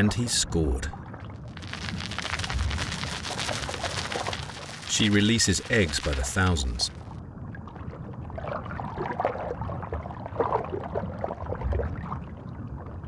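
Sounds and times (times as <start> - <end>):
stream water gurgling: 1.4 - 7.0.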